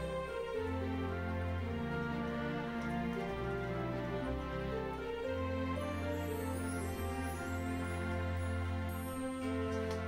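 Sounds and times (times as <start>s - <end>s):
soft slow background music: 0.0s - 10.0s.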